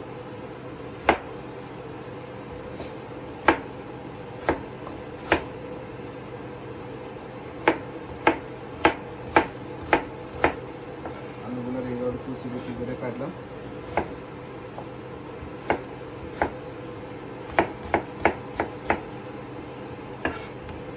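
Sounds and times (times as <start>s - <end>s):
knife chopping on cutting board: 1.0s - 1.4s, 2.5s - 3.7s, 4.4s - 5.5s, 7.6s - 11.2s, 13.9s - 14.2s, 14.8s - 16.6s, 17.5s - 19.1s, 20.2s - 20.6s.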